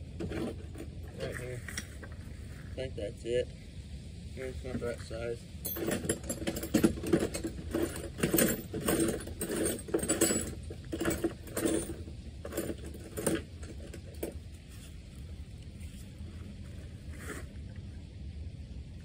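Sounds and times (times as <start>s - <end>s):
tools and metal parts clinking: 0.2s - 1.5s, 5.6s - 14.4s.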